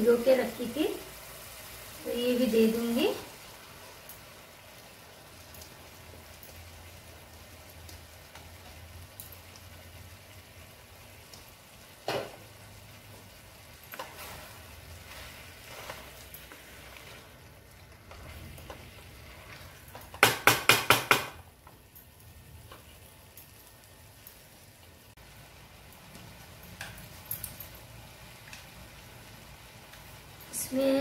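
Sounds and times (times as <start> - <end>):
food sizzling faintly: 0.0 - 20.3
wooden spatula stirring: 13.9 - 21.8
sharp knocks: 20.2 - 21.4.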